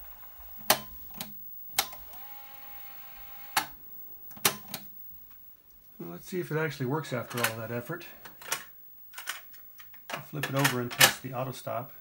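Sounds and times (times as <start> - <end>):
tape transport whine: 0.0 - 9.5.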